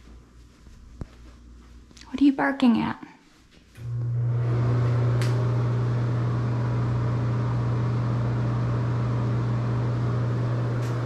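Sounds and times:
exhaust fan motor hum: 3.8 - 11.0.

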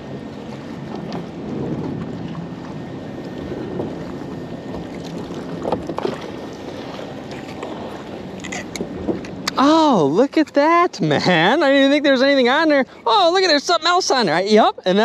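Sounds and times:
wind on microphone: 0.0 - 9.6
choppy water: 0.0 - 15.0
short splashes and knocks: 0.8 - 9.6.

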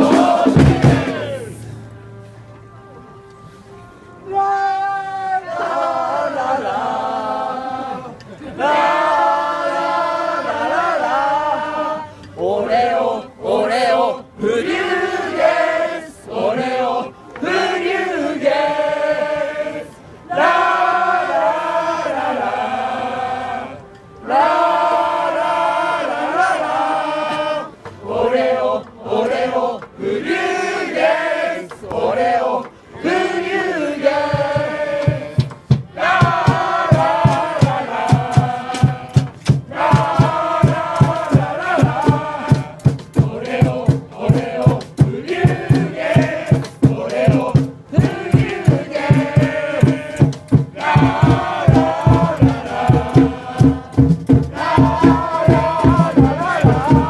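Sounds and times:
steady drum beat: 0.0 - 1.4, 34.1 - 57.0
supporters singing a chant: 0.0 - 1.8, 4.3 - 57.0.

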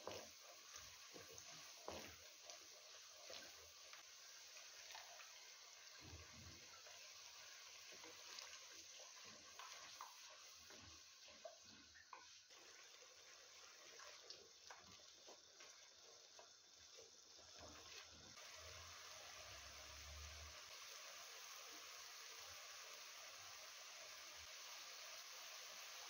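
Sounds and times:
wooden spoon stirring: 0.0 - 4.0, 7.8 - 18.1
paste sizzling and bubbling: 0.0 - 26.0.

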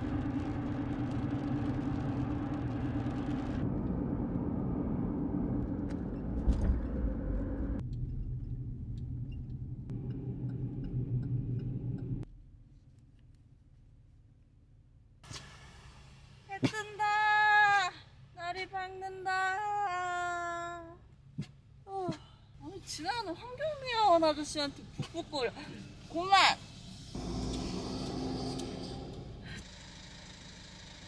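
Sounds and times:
road and engine rumble in truck cabin: 0.0 - 16.9.

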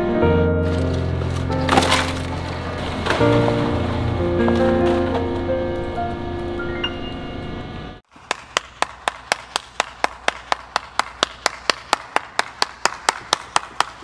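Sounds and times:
background music: 0.0 - 8.0
person clapping hands: 8.1 - 14.0.

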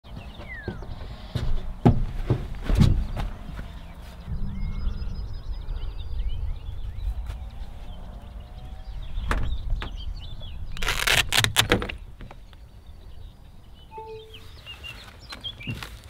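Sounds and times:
birds chirping and trilling: 0.1 - 16.0
loud knocks and rustles: 0.4 - 3.7
low rumble: 4.2 - 10.6.

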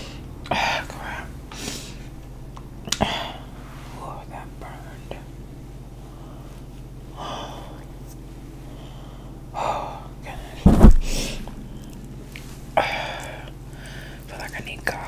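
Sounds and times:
deep thud: 10.6 - 12.9.

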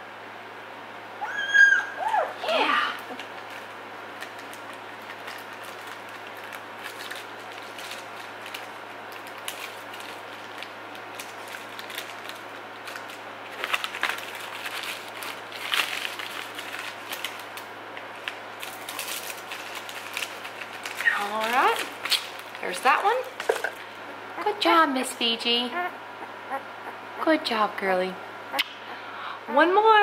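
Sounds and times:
steady low hum: 0.0 - 30.0
paper packaging rustling: 3.1 - 24.0.

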